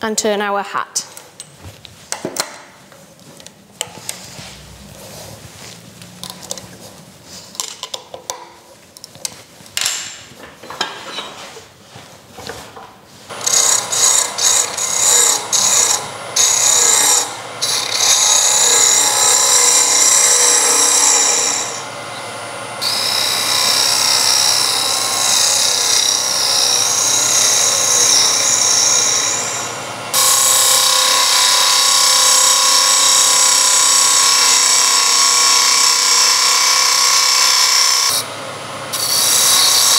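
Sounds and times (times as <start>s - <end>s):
gouge scraping spinning wood: 13.3s - 38.3s, 39.0s - 39.9s.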